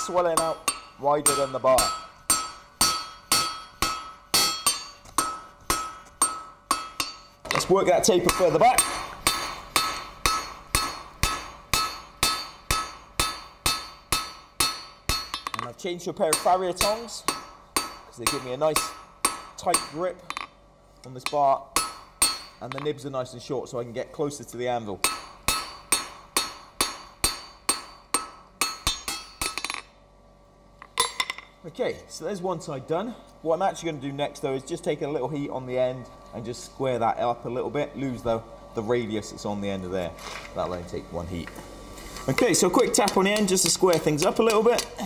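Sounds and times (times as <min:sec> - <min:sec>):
hammer striking steel on anvil: 0:00.0 - 0:20.6, 0:21.2 - 0:22.9, 0:25.0 - 0:30.0, 0:30.8 - 0:31.5, 0:42.6 - 0:45.0.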